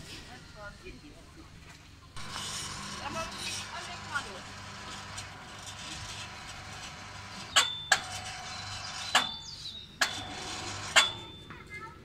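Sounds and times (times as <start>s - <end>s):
metallic ring of springs: 2.2s - 11.5s.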